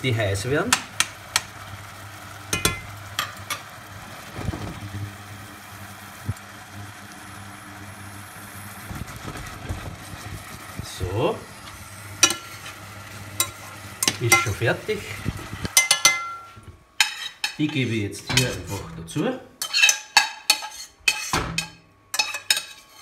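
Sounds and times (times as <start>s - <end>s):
spoon clinking against pan: 2.6s - 3.3s, 15.8s - 17.6s, 19.6s - 22.8s.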